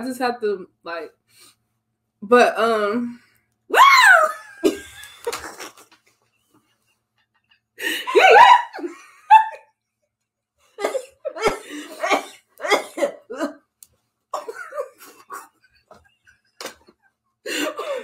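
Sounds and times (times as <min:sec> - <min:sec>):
person coughing: 0:10.8 - 0:13.6, 0:14.4 - 0:15.4.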